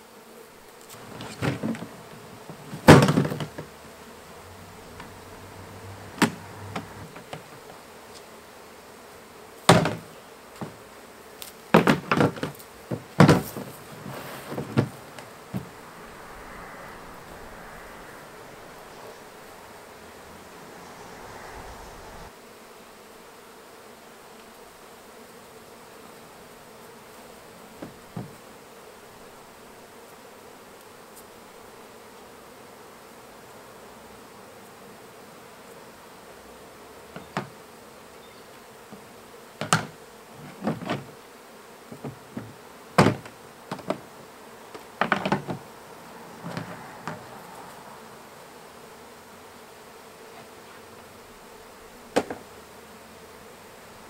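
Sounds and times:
bees buzzing: 0.0 - 54.0
knocks of wooden hive frames: 0.8 - 8.2, 9.6 - 16.0, 27.6 - 28.5, 37.1 - 37.7, 38.8 - 45.8, 46.4 - 47.5, 52.0 - 52.8.

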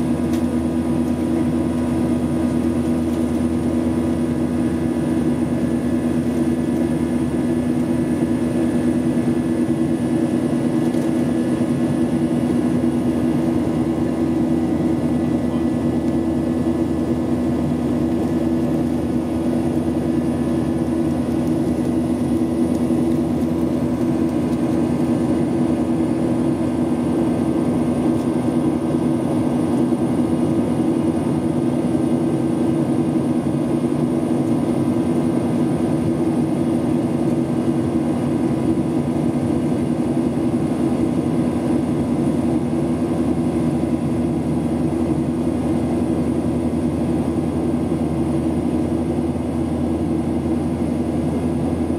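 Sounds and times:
jet engines droning: 0.0 - 51.9
low cabin hum: 0.0 - 51.9.

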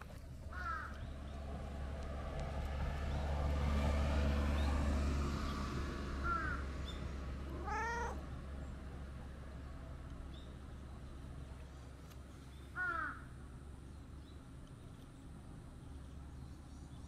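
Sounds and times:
cat meowing: 7.5 - 8.3.

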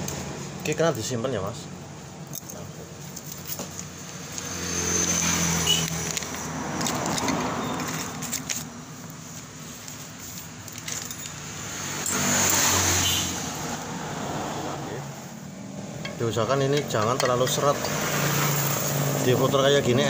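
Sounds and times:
vehicle engine passing: 4.0 - 8.7, 11.4 - 20.0.

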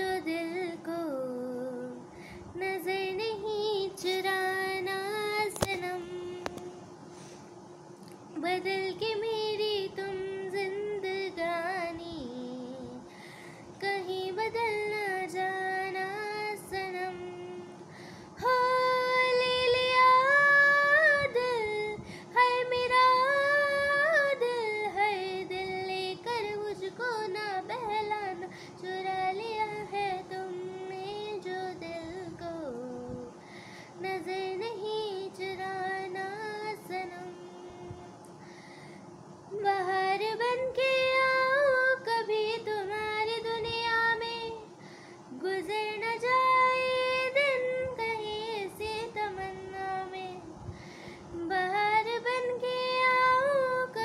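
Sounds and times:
woman singing: 0.0 - 7.0, 8.3 - 13.1, 13.7 - 38.4, 39.5 - 50.6, 51.2 - 54.0.

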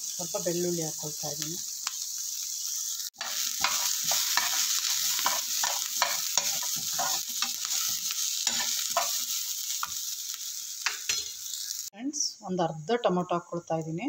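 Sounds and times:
food sizzling in a pan: 0.0 - 14.0
metal spoon scraping a pan: 3.2 - 10.0, 10.8 - 11.7.

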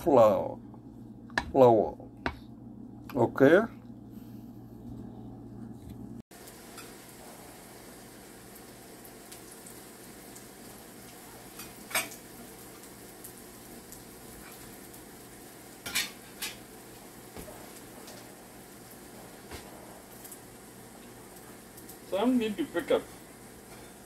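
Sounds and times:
fritters sizzling in oil: 6.4 - 24.0.

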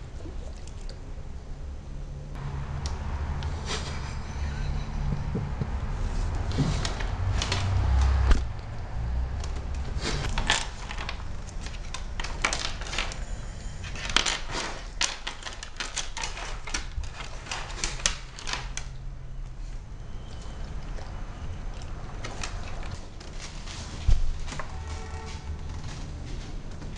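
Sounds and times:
low rumble: 2.3 - 11.6.

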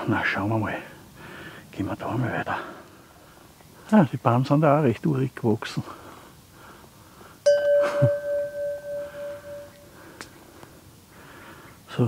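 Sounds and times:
notification bell ding: 7.5 - 9.9.

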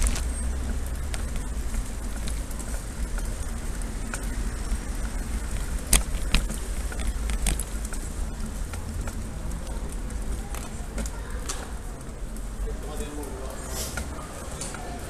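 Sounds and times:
bicycle riding over stone paving: 0.0 - 15.0
bike clicks and rattles: 0.0 - 15.0.

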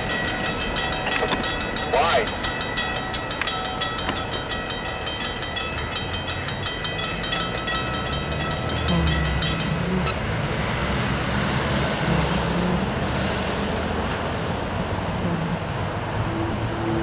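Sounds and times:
freight train clicking past: 0.0 - 17.0
truck engine driving past: 7.8 - 17.0.

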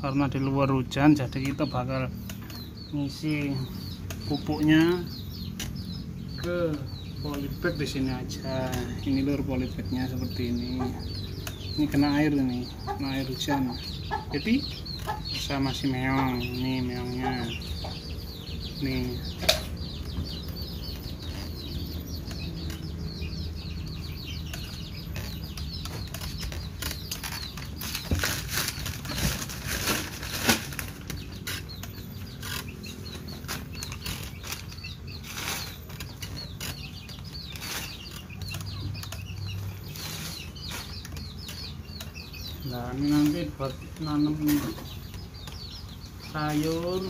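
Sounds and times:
small birds chirping: 0.0 - 47.0
plastic bags rustling: 25.0 - 41.7
scooping and scraping soil mix: 35.2 - 36.1.

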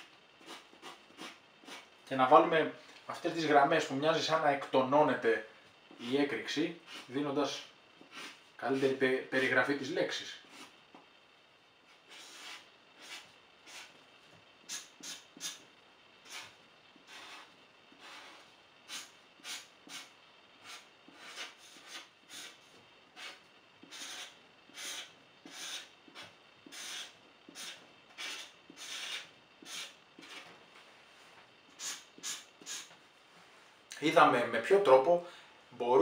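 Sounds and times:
marker drawing on paper: 0.0 - 1.9, 11.9 - 14.0, 14.6 - 15.6, 16.2 - 30.5, 31.7 - 32.9.

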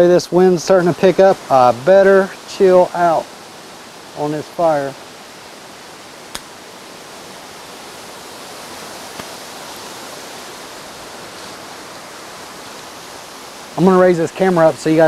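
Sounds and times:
sharp click: 6.3 - 6.5.

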